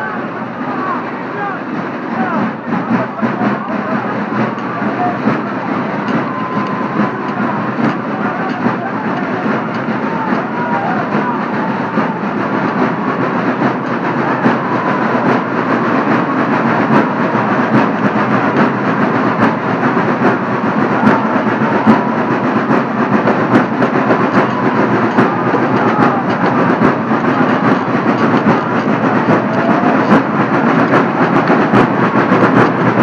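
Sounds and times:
crowd noise: 0:00.0 - 0:33.0.

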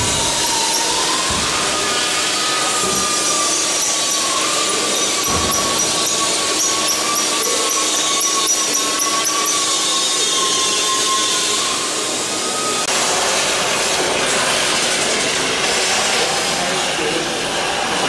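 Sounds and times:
power tool whining: 0:00.0 - 0:12.9
rough grinding noise: 0:00.0 - 0:18.0.

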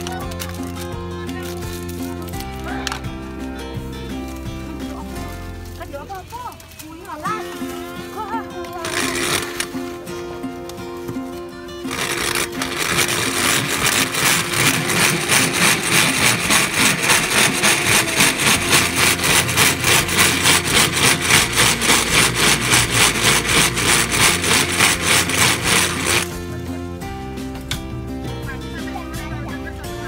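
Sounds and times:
blender crushing ice: 0:08.8 - 0:09.8, 0:11.8 - 0:26.4.

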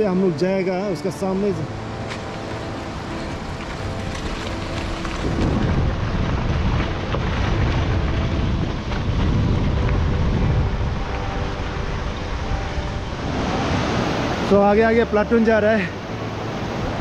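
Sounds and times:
river rapids roaring: 0:00.0 - 0:17.0
wind buffeting microphone: 0:01.7 - 0:14.6.

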